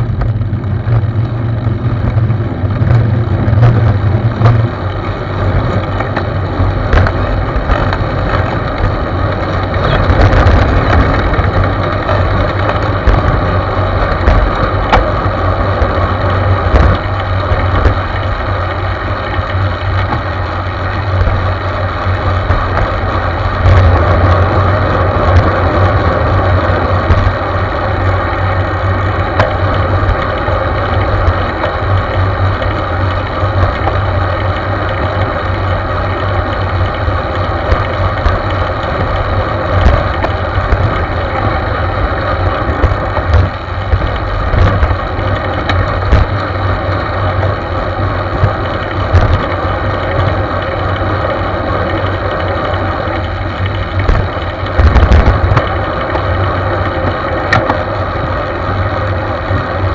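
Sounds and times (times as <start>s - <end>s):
tyre-on-road noise: 0.0s - 59.9s
wind buffeting microphone: 51.9s - 58.3s.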